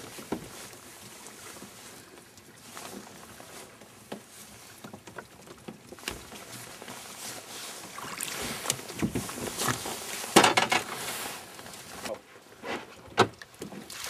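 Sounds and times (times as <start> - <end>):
water splashing against boat: 0.0 - 14.0
knocks and handling bumps: 8.8 - 10.9.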